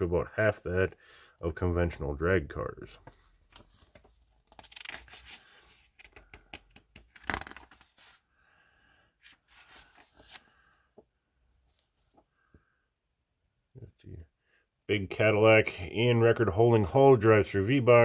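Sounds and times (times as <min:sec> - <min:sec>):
magazine pages rustling: 0:03.0 - 0:08.3, 0:09.2 - 0:11.0.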